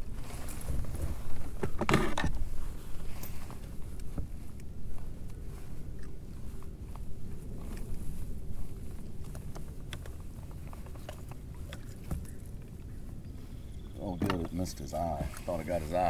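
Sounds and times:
handling knocks and clicks: 8.9s - 13.2s, 14.1s - 15.5s.

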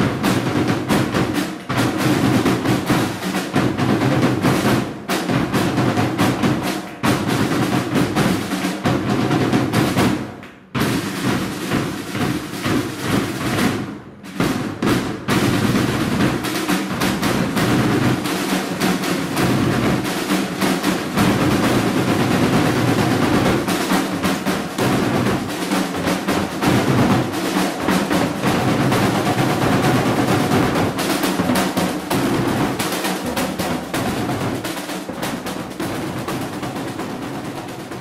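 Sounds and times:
marching snare and bass drums: 0.0s - 38.0s.

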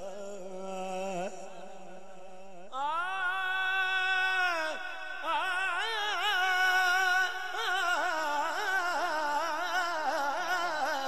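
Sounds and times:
man singing long notes: 2.7s - 11.0s.

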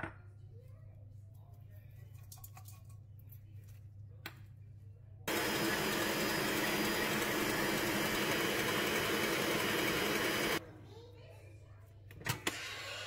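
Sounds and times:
stand mixer whisking: 5.3s - 10.6s.

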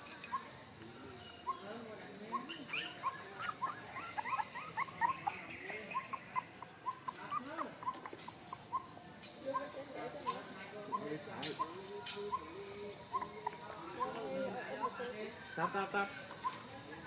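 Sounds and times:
puppy whimpering: 2.3s - 8.9s.

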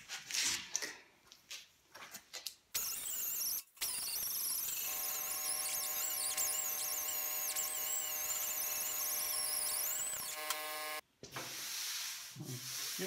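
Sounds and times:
die grinder whining on metal: 2.8s - 11.0s.

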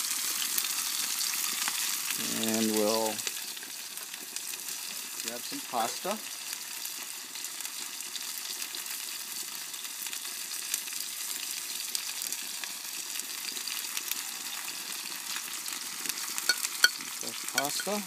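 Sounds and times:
food sizzling in a pan: 0.0s - 18.0s.

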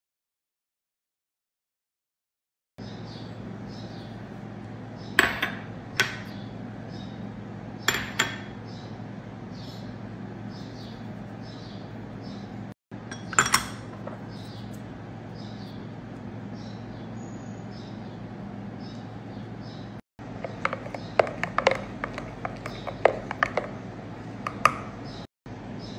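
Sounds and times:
spoon clinking against bowls: 13.1s - 14.2s, 20.4s - 24.9s.

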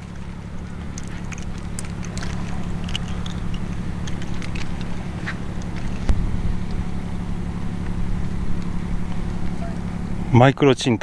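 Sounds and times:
light clicks and ticks: 0.0s - 6.8s
low engine drone: 0.0s - 11.0s.

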